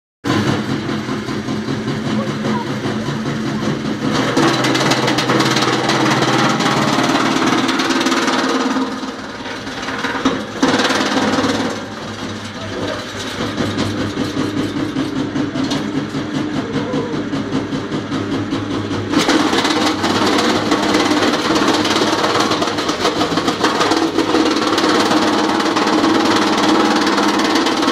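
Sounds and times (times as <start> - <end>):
wood chipper chipping branches: 0.2 - 27.9
motor and drum humming: 0.3 - 27.9.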